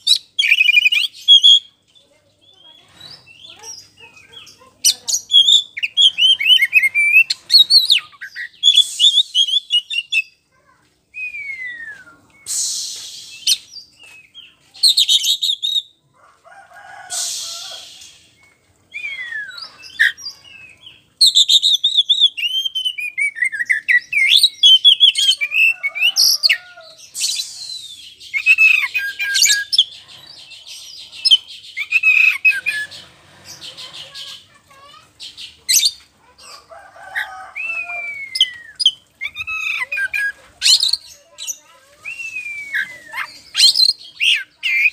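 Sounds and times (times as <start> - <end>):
bird singing whistled phrases: 0.1 - 1.7, 5.2 - 10.3, 11.1 - 15.9, 17.2 - 29.8, 37.5 - 44.9
harsh bird calls: 2.4 - 10.4, 16.5 - 44.9.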